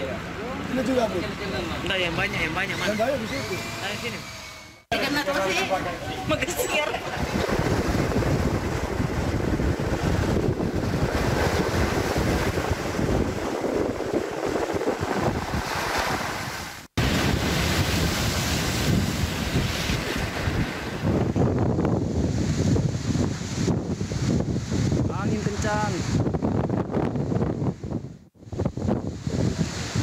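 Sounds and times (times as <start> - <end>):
wind buffeting microphone: 5.8 - 30.0
surf breaking against seawall: 6.6 - 21.4.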